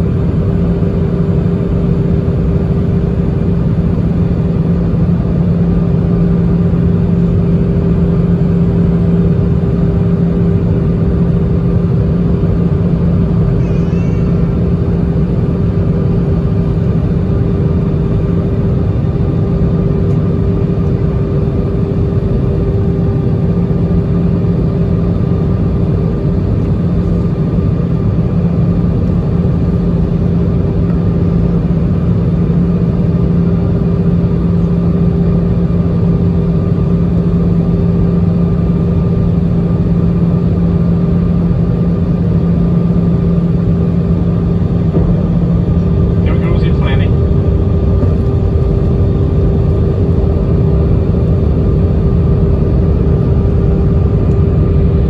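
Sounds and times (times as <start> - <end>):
airliner cabin air and engine noise: 0.0 - 55.0
constant low hum: 0.0 - 55.0.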